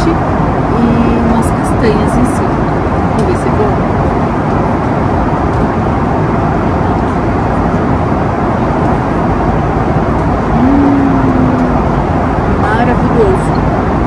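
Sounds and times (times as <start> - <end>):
airliner cabin roar: 0.0 - 14.0.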